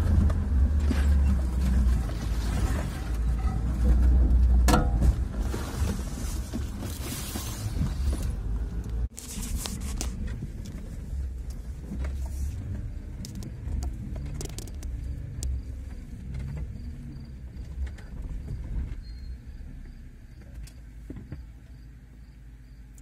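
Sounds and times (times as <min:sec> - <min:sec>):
knocks and rattles from bumps: 0:00.0 - 0:09.1
off-road vehicle engine rumble: 0:00.0 - 0:23.0.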